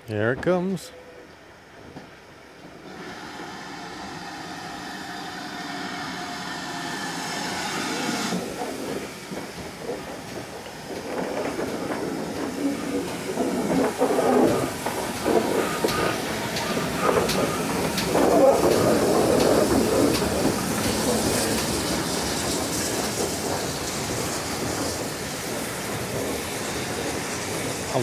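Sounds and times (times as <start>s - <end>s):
steam locomotive drawing in: 0.0s - 28.0s
train wheels clattering and knocking: 7.2s - 28.0s.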